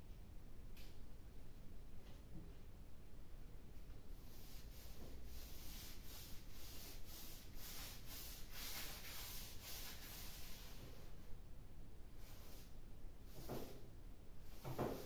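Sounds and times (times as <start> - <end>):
rubbing strokes on a surface: 4.2 - 11.2, 12.2 - 13.8, 14.4 - 15.0.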